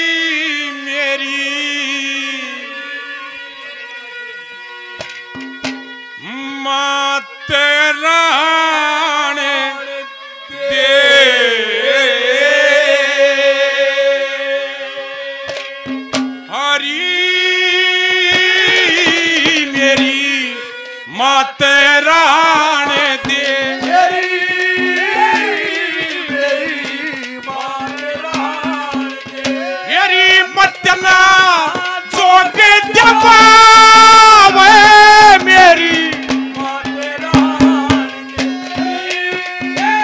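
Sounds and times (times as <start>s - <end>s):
man singing: 0.0s - 3.4s, 6.2s - 40.0s
hand drums beating: 5.0s - 6.0s, 15.5s - 16.6s, 18.2s - 20.5s, 22.6s - 40.0s.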